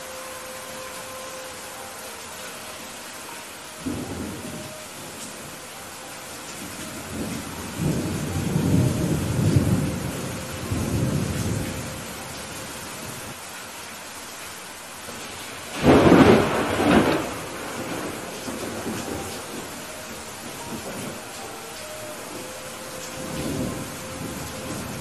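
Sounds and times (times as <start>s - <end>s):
steady rain: 0.0s - 25.0s
rolling thunder rumble: 6.6s - 12.3s, 15.2s - 25.0s
thunderclap: 15.7s - 19.8s.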